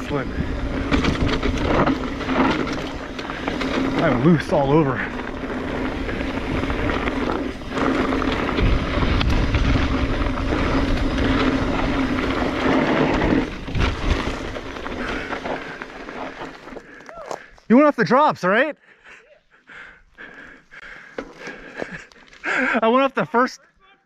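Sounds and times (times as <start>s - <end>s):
bike tyres rolling on dirt: 0.0s - 23.6s.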